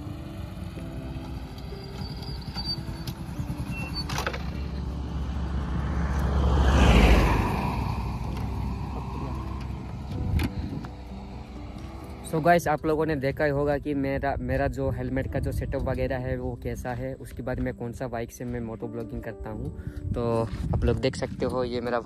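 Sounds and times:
motor vehicle passing by: 0:00.0 - 0:12.4.

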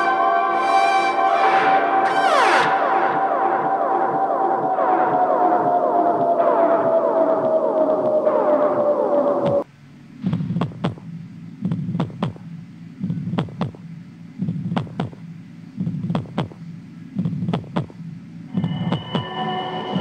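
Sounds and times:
eerie synthesizer tone: 0:00.0 - 0:09.7, 0:18.5 - 0:20.0
heartbeat thumps: 0:01.6 - 0:20.0.

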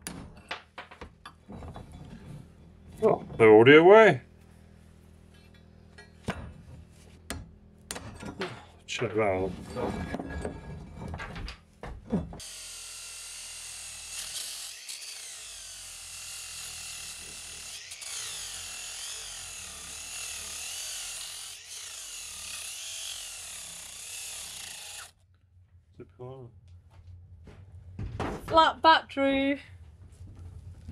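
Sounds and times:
angle grinder grinding metal: 0:12.4 - 0:25.2.

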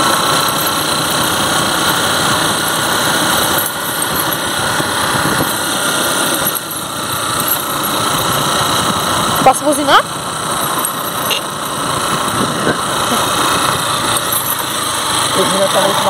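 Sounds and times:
small motorcycle engine running: 0:00.0 - 0:16.0
steady rushing noise: 0:00.0 - 0:16.0.

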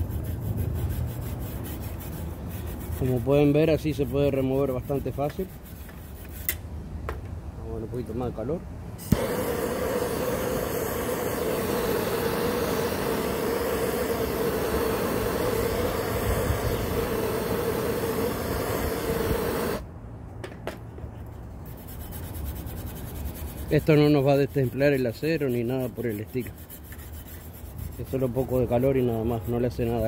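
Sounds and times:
gas torch flame hissing: 0:09.0 - 0:19.8.

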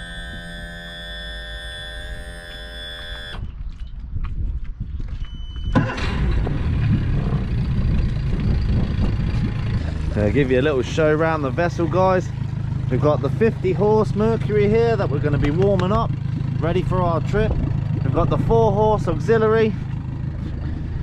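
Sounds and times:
steady held tone: 0:00.0 - 0:03.4, 0:06.9 - 0:20.0
outboard motor starting and idling: 0:00.0 - 0:03.5, 0:05.6 - 0:21.0
short beep: 0:00.0 - 0:03.5.

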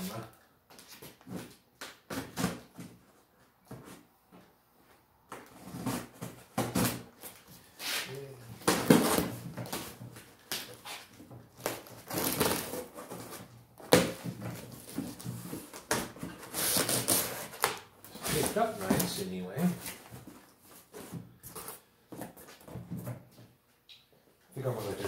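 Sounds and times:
tape and cardboard tearing: 0:05.3 - 0:19.1
blade slitting packing tape: 0:16.5 - 0:17.8.

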